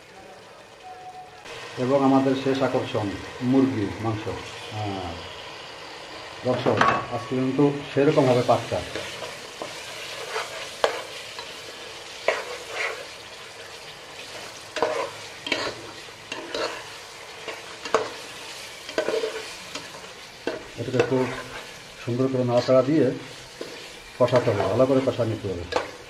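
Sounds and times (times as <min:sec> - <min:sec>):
frying sizzle: 0:00.0 - 0:26.0
spatula scraping pot: 0:08.9 - 0:13.2, 0:14.2 - 0:21.8.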